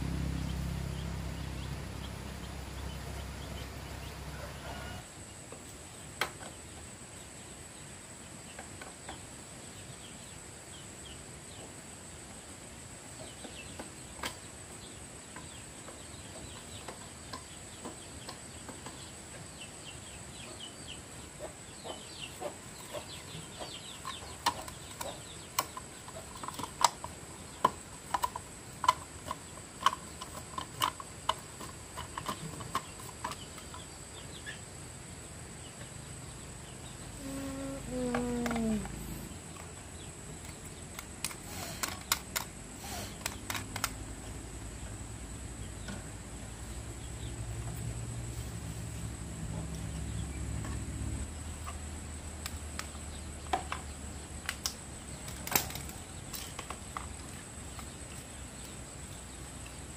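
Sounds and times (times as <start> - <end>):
high insect buzz: 37.1 - 39.6.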